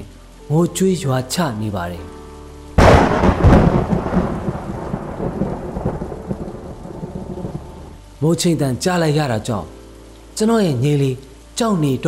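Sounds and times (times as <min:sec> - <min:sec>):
heavy rain: 0:00.0 - 0:12.0
thunderclap: 0:02.8 - 0:07.9.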